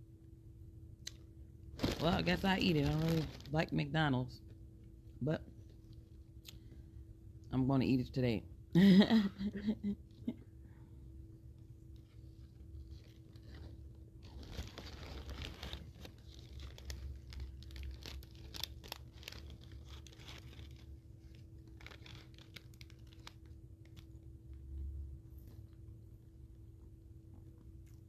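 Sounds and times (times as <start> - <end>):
paper wrapper crinkling and tearing: 1.8 - 3.9, 12.8 - 24.3.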